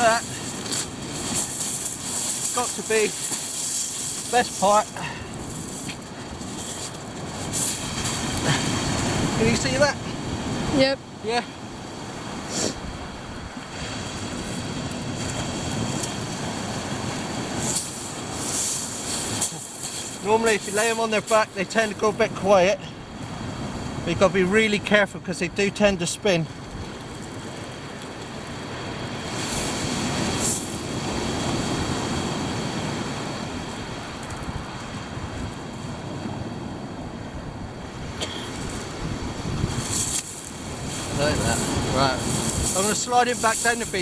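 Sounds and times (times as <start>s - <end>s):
water hissing over pebbles: 0.0s - 8.7s, 17.5s - 21.4s, 39.7s - 44.0s
wind on microphone: 0.0s - 20.8s, 26.5s - 44.0s
surf washing on shingle: 0.0s - 36.9s, 37.8s - 44.0s.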